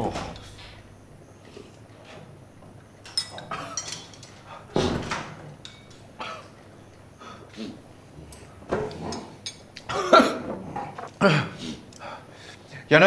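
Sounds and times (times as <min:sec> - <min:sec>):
dishes and cutlery clinking: 0:03.0 - 0:06.6, 0:08.4 - 0:11.1.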